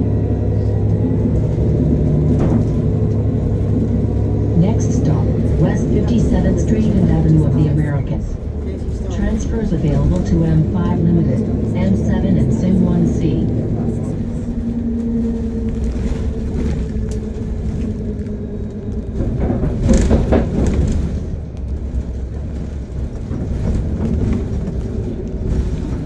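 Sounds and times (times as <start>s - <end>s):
bus engine rumble: 0.0s - 26.0s
knocks and rattles: 19.1s - 26.0s.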